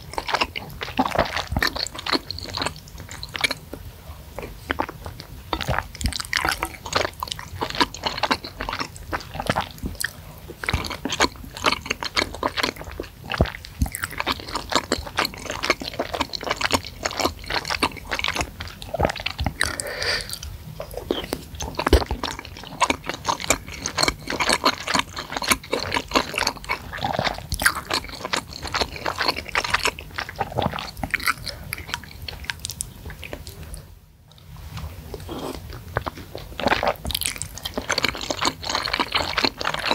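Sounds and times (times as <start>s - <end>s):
close-miked chewing: 0.0s - 39.9s.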